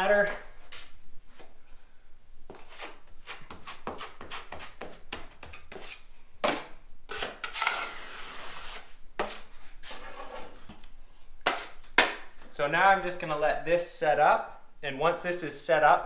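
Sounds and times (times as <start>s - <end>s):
drywall knife scraping compound: 2.5s - 10.8s, 11.4s - 12.3s.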